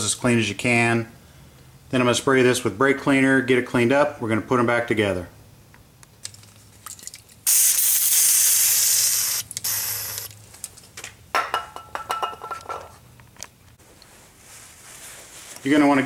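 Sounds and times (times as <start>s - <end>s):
aerosol can spraying: 7.5s - 10.3s
rough spray noise with whistle: 7.5s - 10.3s.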